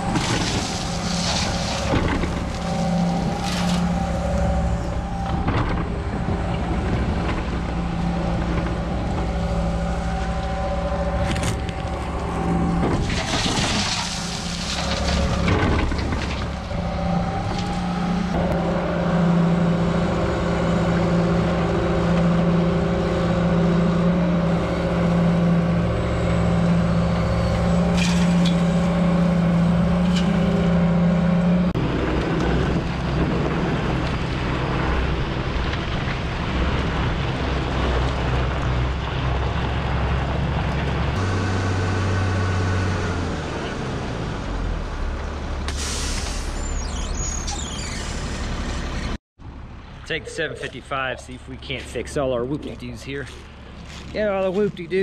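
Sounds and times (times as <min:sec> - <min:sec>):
low tone: 0:00.0 - 0:14.0
diesel engine under load: 0:00.0 - 0:55.0.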